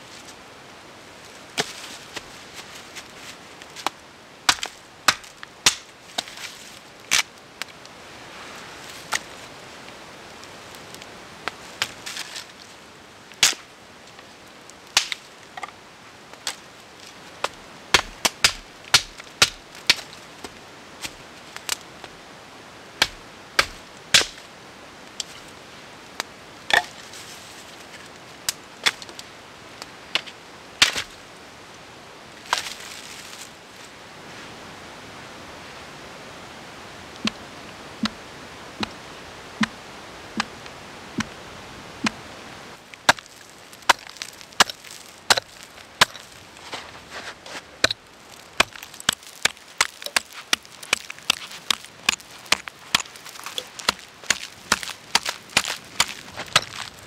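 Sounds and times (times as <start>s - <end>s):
campfire crackling and popping: 3.6s - 6.4s, 8.9s - 15.7s, 16.3s - 22.2s, 23.0s - 25.4s, 38.0s - 38.2s, 42.0s - 46.8s, 47.7s - 57.0s.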